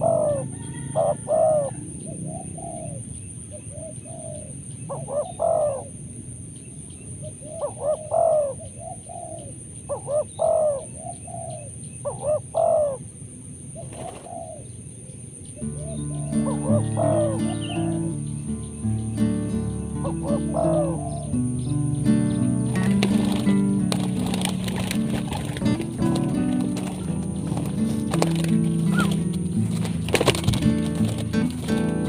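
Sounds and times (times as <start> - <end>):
doves cooing: 0.0 - 6.0, 7.2 - 13.0, 13.8 - 14.7, 15.6 - 32.0
wings fluttering: 13.8 - 14.6, 22.3 - 32.0.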